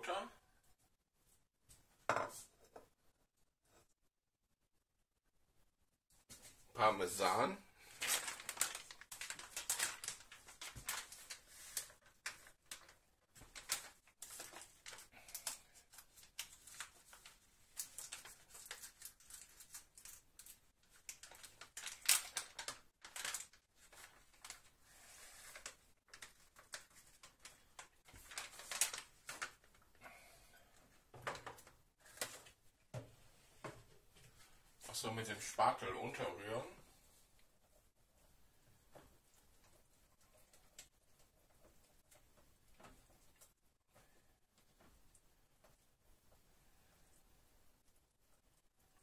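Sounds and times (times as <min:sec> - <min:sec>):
plastic bag crinkling: 0:07.2 - 0:30.0.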